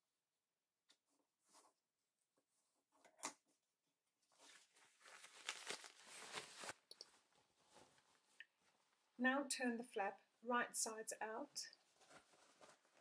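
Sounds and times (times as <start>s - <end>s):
crackly fabric rustling: 4.2s - 9.2s, 11.7s - 13.0s.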